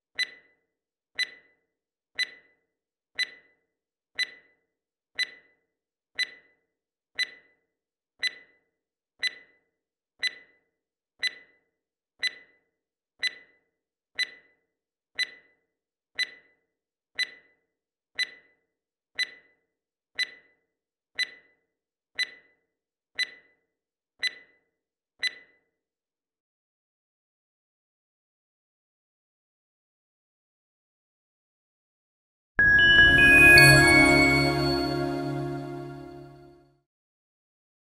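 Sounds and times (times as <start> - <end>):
clock-like timer ticks: 0.2 - 0.6, 1.2 - 1.6, 2.2 - 2.6, 3.2 - 3.6, 4.2 - 4.6, 5.2 - 5.6, 6.2 - 6.6, 7.2 - 7.6, 8.2 - 8.6, 9.2 - 9.6, 10.2 - 10.6, 11.2 - 11.6, 12.2 - 12.6, 13.2 - 13.6, 14.2 - 14.6, 15.2 - 15.6, 16.2 - 16.6, 17.2 - 17.6, 18.2 - 18.6, 19.2 - 19.6, 20.2 - 20.6, 21.2 - 21.6, 22.2 - 22.6, 23.2 - 23.6, 24.2 - 24.6, 25.2 - 25.6.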